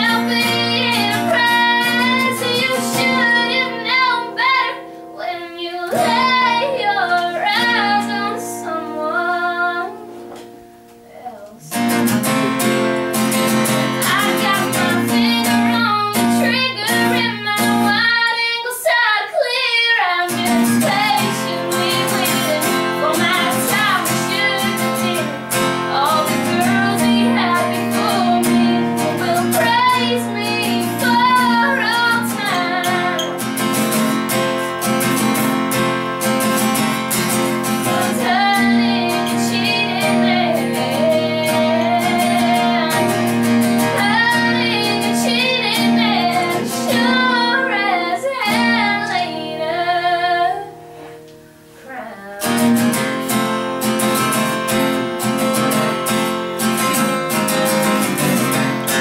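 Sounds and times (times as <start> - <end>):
woman singing: 0.0 - 10.3, 11.0 - 12.8, 13.6 - 33.9, 37.3 - 50.9, 51.8 - 52.7
guitar strumming: 0.0 - 59.0.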